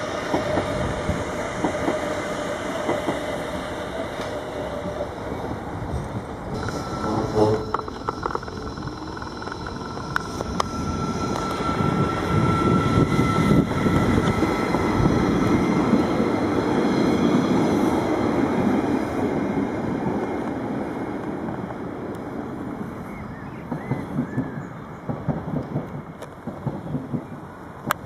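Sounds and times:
diesel railcar rumbling past: 0.0 - 27.9
steady whine: 3.9 - 16.6.

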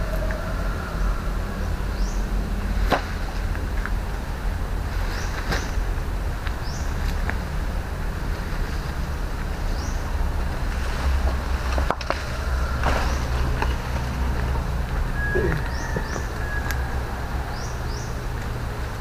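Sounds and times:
palm frond rustling and scraping: 2.6 - 17.0.

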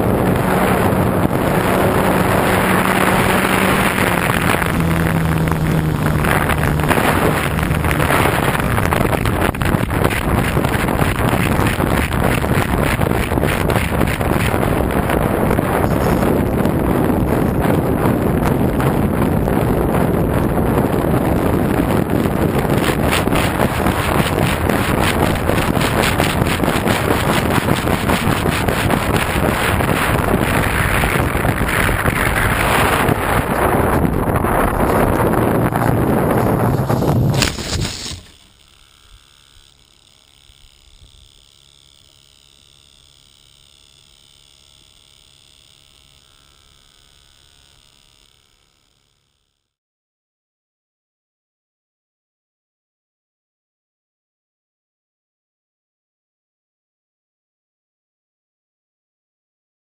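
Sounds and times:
wind buffeting microphone: 0.0 - 38.4
propeller low drone: 0.0 - 49.4.

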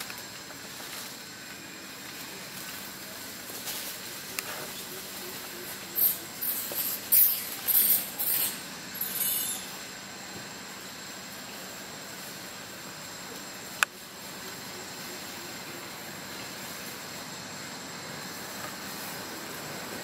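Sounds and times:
dry leaves rustling: 0.0 - 20.0
faint hiss: 0.0 - 20.0
thin high steady tone: 5.2 - 10.2.

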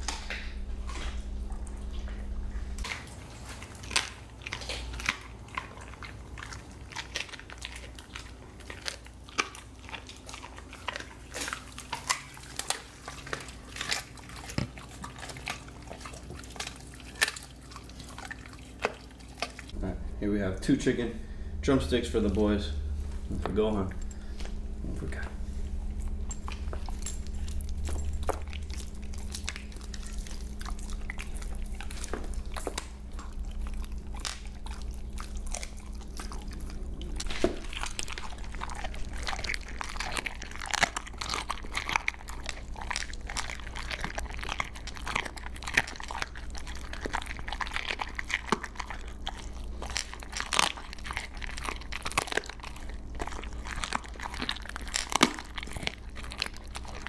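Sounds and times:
dogs gnawing wetly: 0.0 - 19.8, 20.6 - 57.0
bones crunching: 21.0 - 57.0.

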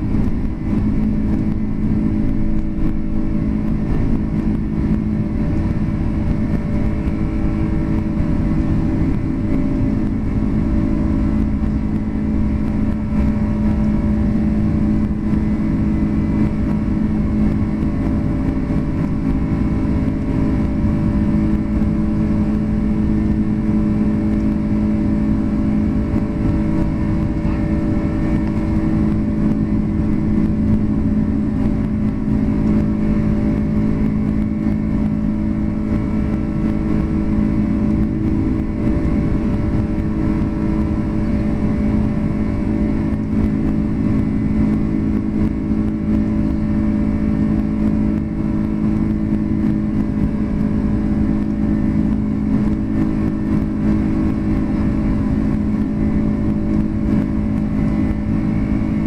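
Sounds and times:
airplane cabin engine rush and hum: 0.0 - 59.0.

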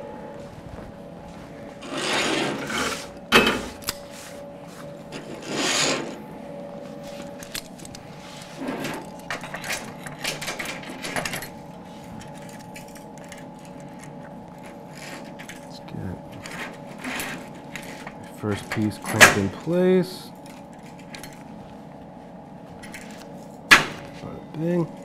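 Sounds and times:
metal scraping and rustling: 0.4 - 6.2, 6.9 - 19.8.

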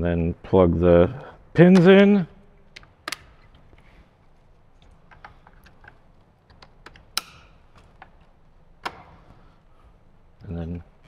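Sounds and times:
plastic connectors clicking: 4.8 - 9.0.

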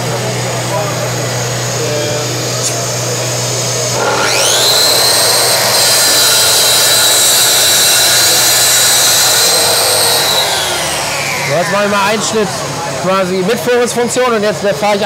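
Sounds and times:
dust extractor humming: 0.0 - 15.0
track saw whining: 0.0 - 15.0.

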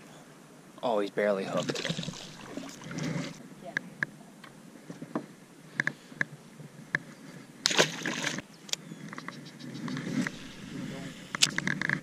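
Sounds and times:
fish splashing into water: 1.5 - 2.9, 7.7 - 8.4.

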